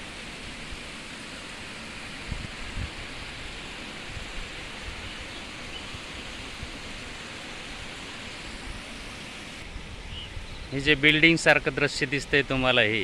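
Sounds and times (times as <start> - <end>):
water rushing in a tank: 0.0 - 10.0
wind buffeting microphone: 2.2 - 7.0.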